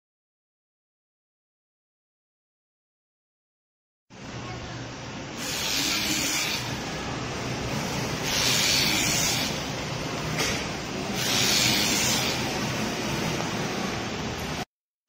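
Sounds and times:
electric scissors cutting fabric: 0:05.4 - 0:06.8, 0:08.2 - 0:09.6, 0:11.2 - 0:12.6.

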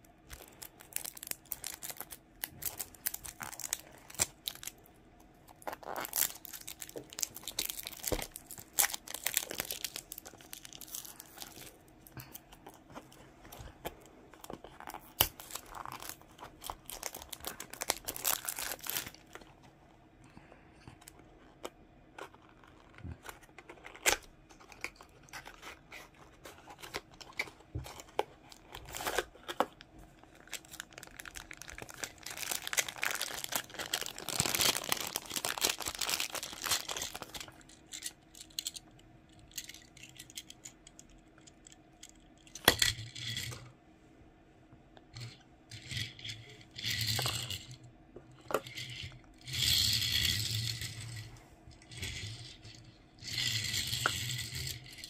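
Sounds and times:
plastic bag crinkling: 0:00.2 - 0:04.8, 0:05.5 - 0:19.5, 0:26.8 - 0:38.9.

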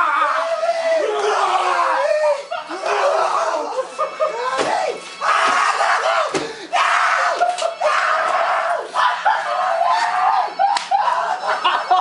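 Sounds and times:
people screaming: 0:00.0 - 0:12.0
sharp slaps: 0:10.7 - 0:11.0.

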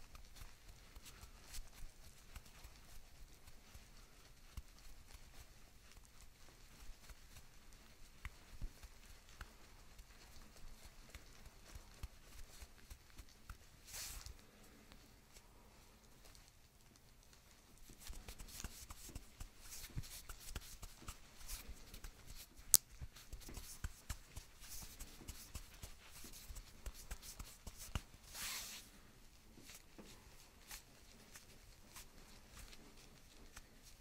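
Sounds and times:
hands rubbing on shirt fabric: 0:00.0 - 0:34.0
fabric swish: 0:13.5 - 0:14.4, 0:17.9 - 0:29.1
scratchy rustles and clicks: 0:16.0 - 0:34.0.

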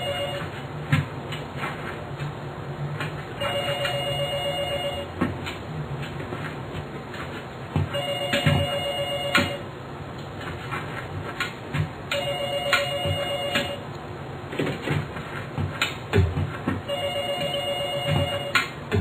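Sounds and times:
telephone ringing: 0:00.0 - 0:00.6, 0:03.4 - 0:05.2, 0:07.9 - 0:09.7, 0:12.1 - 0:13.8, 0:16.9 - 0:19.0.

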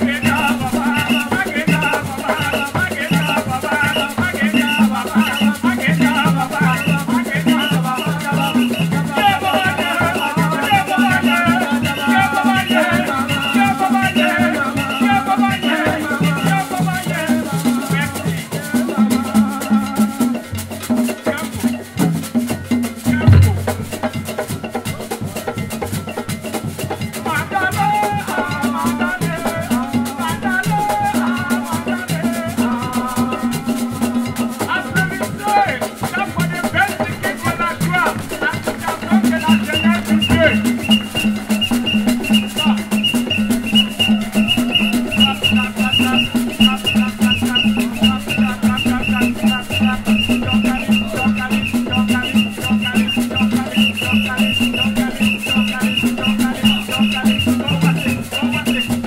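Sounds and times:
people singing: 0:00.0 - 0:21.8, 0:22.5 - 0:59.0
hand drums: 0:00.0 - 0:59.0
shaker rattles: 0:00.0 - 0:59.0
deep thump: 0:23.3 - 0:24.0.

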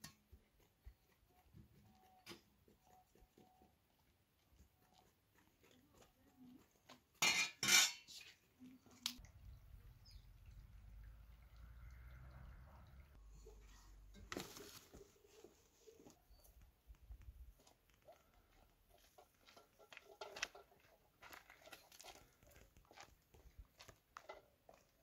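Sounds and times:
footsteps on dirt path: 0:15.9 - 0:25.0.

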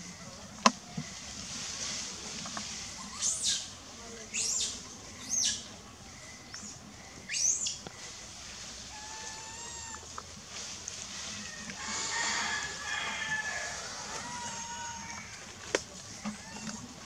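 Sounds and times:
sharp animal chirps: 0:06.5 - 0:07.8.

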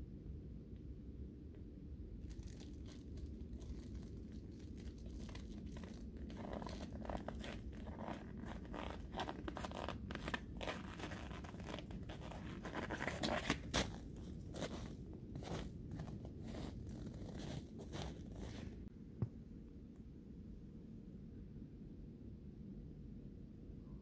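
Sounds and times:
footsteps crunching in snow: 0:02.2 - 0:18.8
jacket and gloves rustling: 0:02.2 - 0:18.9.

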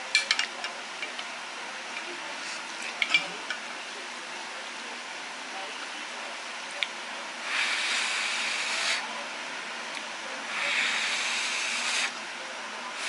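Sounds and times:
person blowing on noodles: 0:07.5 - 0:09.0, 0:10.5 - 0:12.2.

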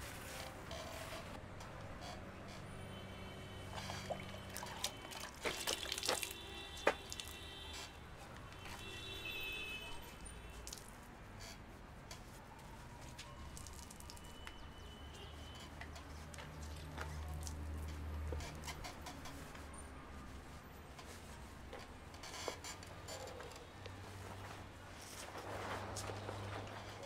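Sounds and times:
water dripping into a bowl: 0:04.1 - 0:07.4.

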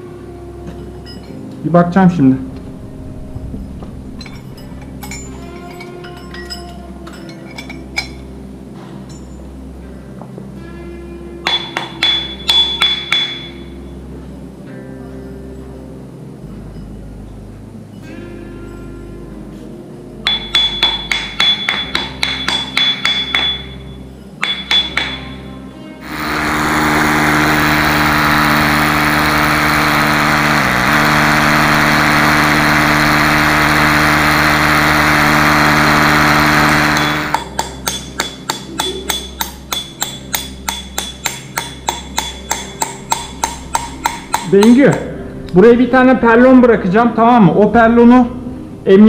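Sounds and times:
metal carabiners clinking: 0:04.1 - 0:08.3
rock hammer tapping rock: 0:37.3 - 0:45.1.

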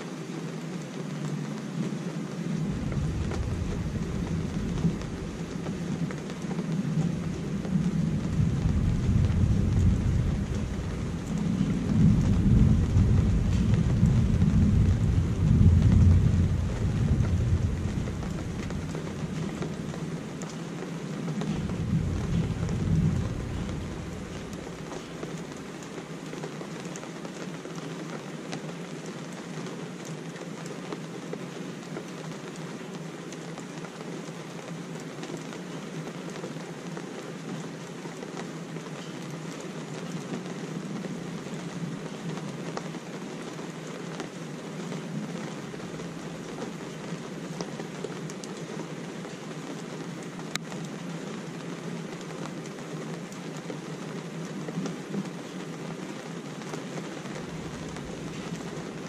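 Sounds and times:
steady rain: 0:00.0 - 0:59.0
thunder rumbling: 0:02.4 - 0:25.9, 0:57.2 - 0:59.0.

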